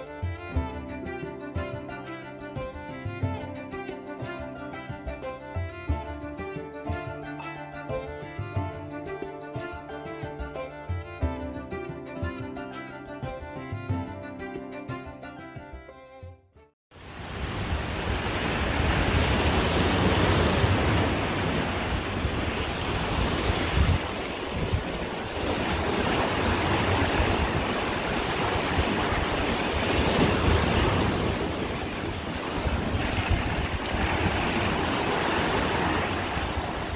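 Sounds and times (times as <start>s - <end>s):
sea waves washing: 17.0s - 36.9s
wind rumbling on microphone: 17.0s - 36.9s.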